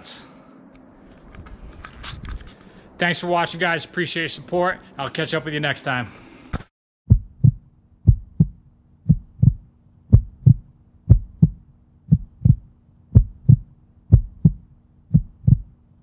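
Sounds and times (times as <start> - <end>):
steady low hum: 0.0 - 6.5, 7.1 - 16.0
heartbeat thumps: 7.1 - 15.8.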